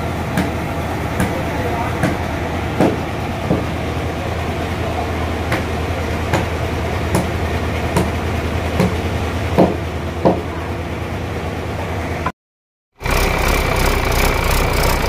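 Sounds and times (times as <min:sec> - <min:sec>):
hammer blows: 0:00.0 - 0:10.6
engine humming: 0:00.0 - 0:12.3, 0:13.0 - 0:15.0.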